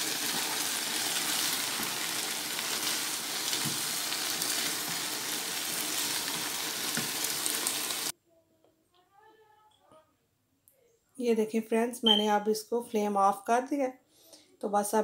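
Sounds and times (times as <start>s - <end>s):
food sizzling in a frying pan: 0.0s - 8.1s.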